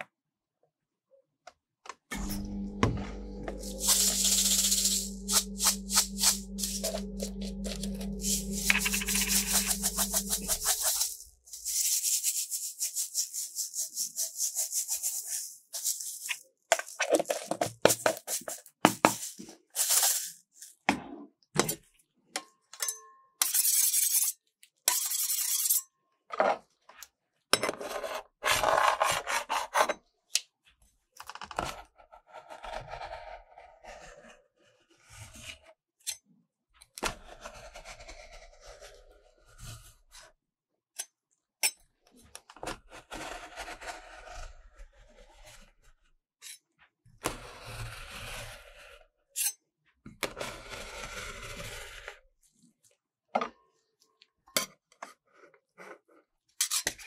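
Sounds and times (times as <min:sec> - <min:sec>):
sprinkles rattling in plastic jar: 0:03.6 - 0:06.8, 0:08.2 - 0:20.4
metal spatulas scraping ice cream: 0:03.6 - 0:20.3, 0:23.4 - 0:25.8.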